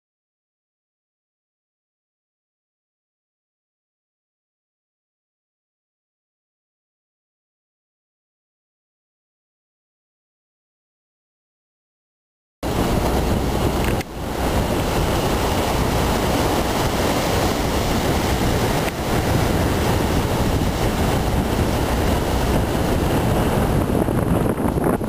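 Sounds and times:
sea noise: 0:12.6 - 0:25.0
wind buffeting microphone: 0:12.6 - 0:25.0.

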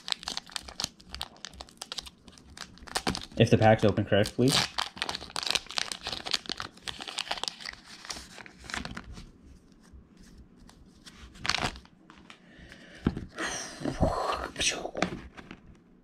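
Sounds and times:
foil wrapper crinkling and tearing: 0:00.0 - 0:09.2, 0:11.4 - 0:11.9.

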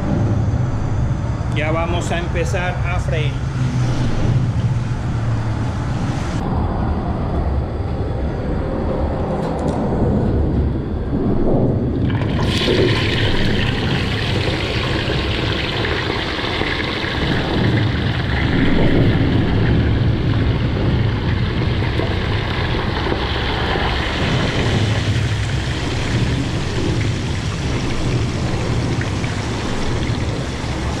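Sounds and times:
low rumble: 0:00.0 - 0:31.0
fish sizzling in hot oil: 0:12.4 - 0:19.2, 0:19.9 - 0:31.0.

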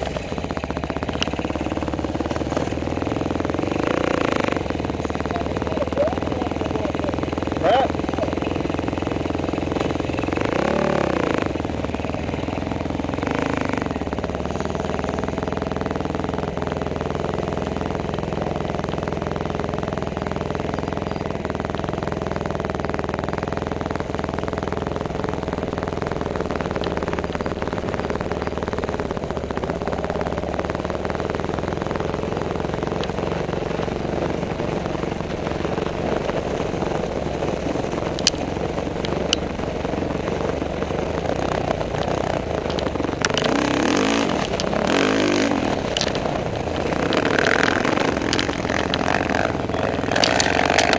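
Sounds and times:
sharp ticks: 0:00.0 - 0:07.6, 0:37.5 - 0:39.6, 0:41.4 - 0:50.9
quad bike engine revving: 0:00.0 - 0:50.9.

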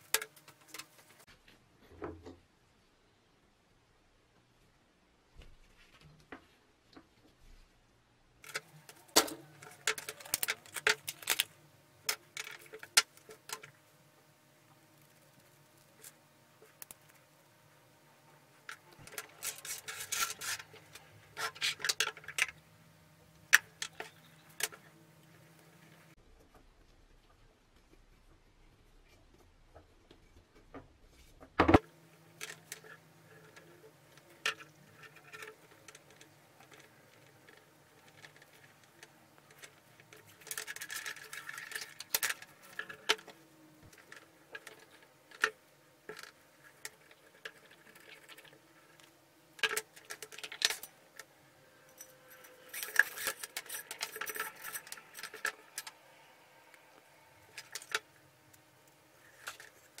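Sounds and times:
scraping rustle: 0:18.8 - 0:22.4.

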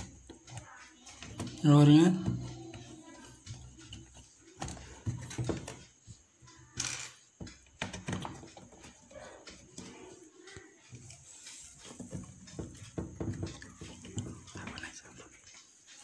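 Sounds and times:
hands tapping plastic panel: 0:03.4 - 0:05.9, 0:07.4 - 0:09.9, 0:11.8 - 0:15.1.

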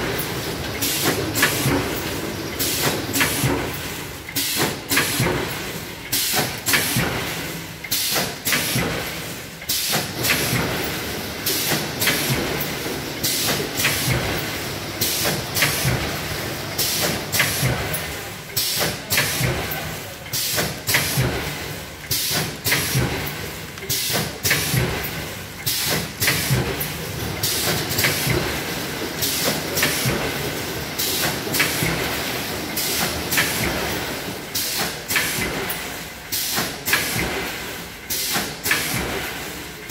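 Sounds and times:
machine hissing: 0:00.0 - 0:39.6
packing machine jaws clacking: 0:00.1 - 0:37.4, 0:38.0 - 0:39.3.

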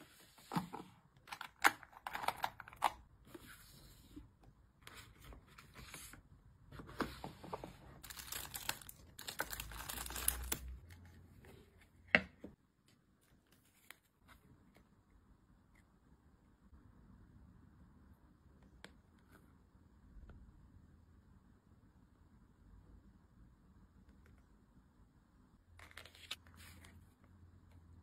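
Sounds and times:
plastic bags crinkling: 0:08.0 - 0:10.8.

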